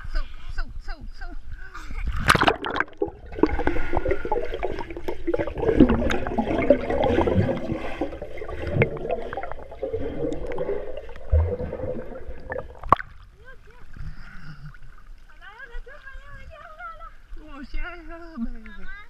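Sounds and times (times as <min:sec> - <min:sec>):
loud water splash: 0:02.2 - 0:13.2
underwater gurgling and bubbling: 0:02.3 - 0:13.2.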